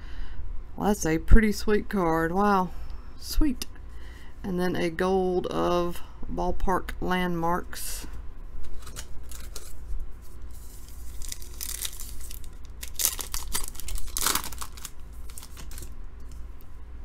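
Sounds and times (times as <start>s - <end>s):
wrapper tearing and crinkling: 8.8s - 9.8s, 10.5s - 16.0s.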